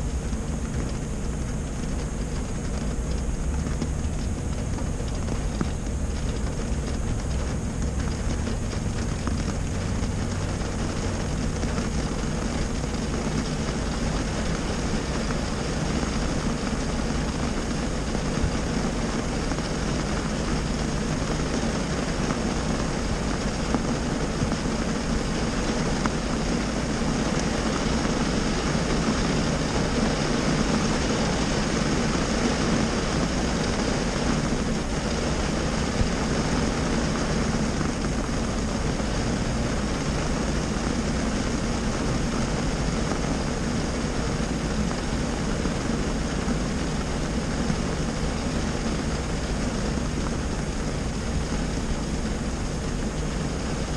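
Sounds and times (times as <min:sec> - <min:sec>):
low hum: 0:00.0 - 0:53.9
rain on a car roof: 0:00.0 - 0:53.9.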